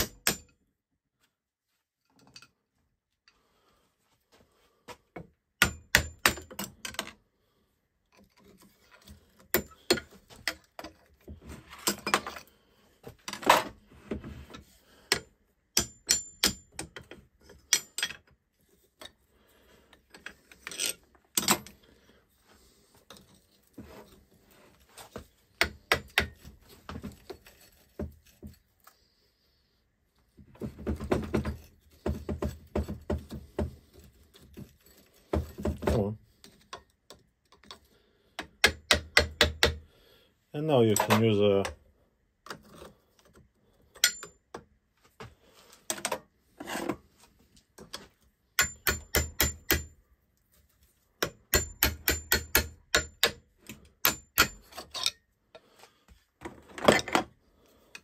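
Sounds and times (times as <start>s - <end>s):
screwdrivers clicking on metal: 44.0s - 44.4s.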